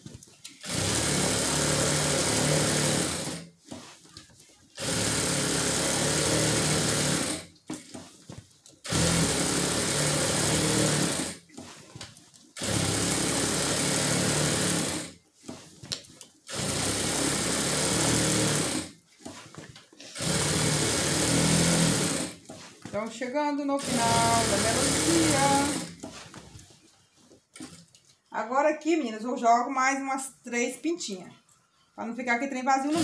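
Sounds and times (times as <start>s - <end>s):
industrial sewing machine stitching: 0.5s - 3.5s, 4.8s - 8.0s, 8.8s - 11.7s, 12.6s - 15.2s, 16.5s - 19.0s, 20.0s - 22.4s, 23.6s - 26.1s, 32.8s - 33.0s.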